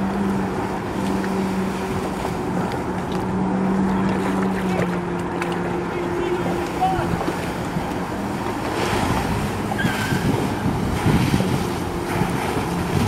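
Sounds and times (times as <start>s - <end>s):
jet ski engine humming: 0.0s - 13.0s
water jets spraying: 0.0s - 13.0s
wind on microphone: 6.4s - 13.0s.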